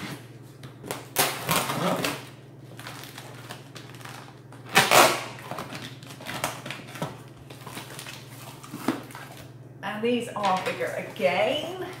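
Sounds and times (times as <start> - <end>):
blade slicing packing tape: 4.7 - 6.9.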